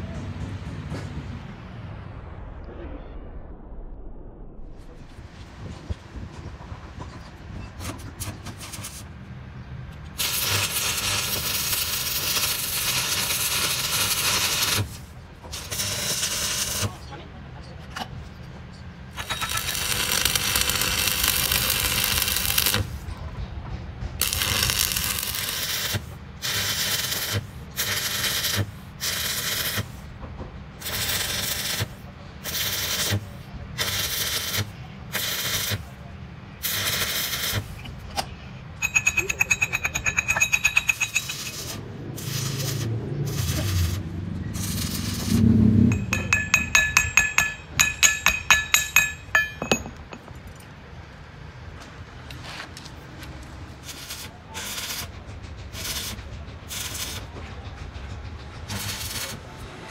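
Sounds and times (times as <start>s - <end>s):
welding arc crackling and hissing: 10.1s - 17.0s, 19.1s - 22.9s, 24.2s - 30.0s, 30.8s - 35.9s, 36.6s - 37.7s, 41.2s - 47.4s, 53.8s - 55.1s, 58.7s - 59.4s
chipping hammer clinking on metal: 38.8s - 41.6s, 45.9s - 50.7s.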